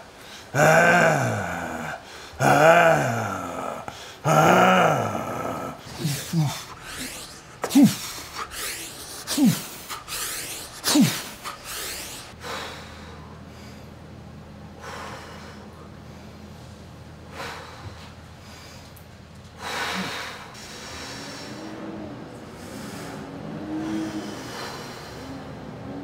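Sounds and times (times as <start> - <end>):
person breathing: 0.0 - 14.0, 19.6 - 26.0
faint low hum: 0.0 - 26.0
person grunting: 0.3 - 12.3.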